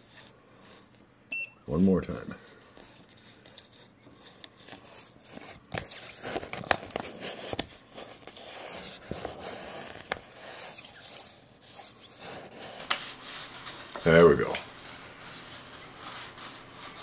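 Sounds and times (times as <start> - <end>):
paper scraping and crinkling: 4.6 - 17.0.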